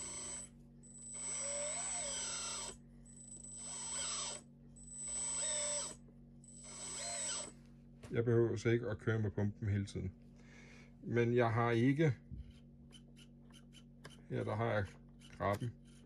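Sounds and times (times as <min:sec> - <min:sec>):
whining electric hydraulic pump: 0:00.0 - 0:07.6.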